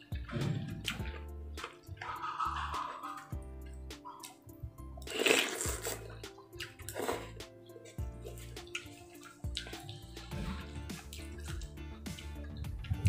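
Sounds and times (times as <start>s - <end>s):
background music: 0.0s - 13.0s
noodles slurped and chewed: 4.2s - 13.0s.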